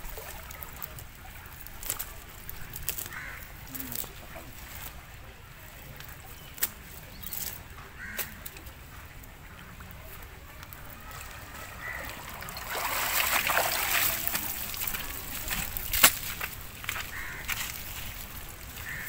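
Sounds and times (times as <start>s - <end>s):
shallow water splashing: 9.7s - 19.0s.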